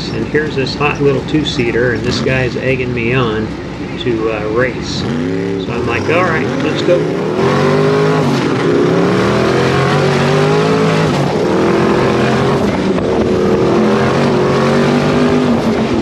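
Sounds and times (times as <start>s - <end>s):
car engine accelerating hard: 0.0s - 16.0s
rushing wind noise: 11.2s - 16.0s.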